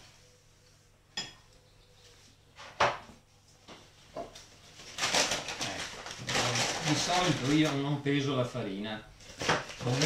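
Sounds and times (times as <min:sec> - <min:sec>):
paper bag rustling: 0:04.4 - 0:08.0, 0:09.2 - 0:10.0.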